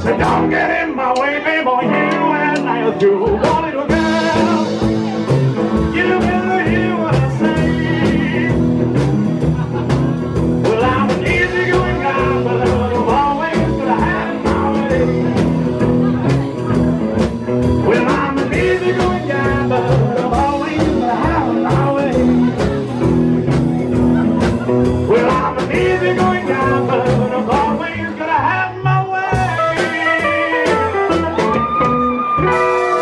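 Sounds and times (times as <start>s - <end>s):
man singing: 0.0s - 33.0s
rock and roll band playing: 0.0s - 33.0s.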